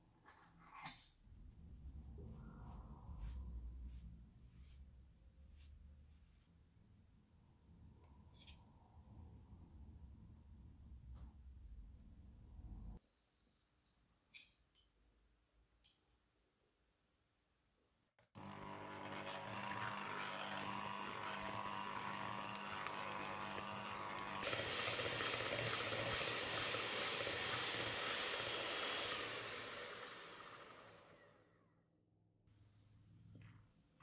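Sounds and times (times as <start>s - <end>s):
electric hand mixer whirring: 18.4s - 31.6s.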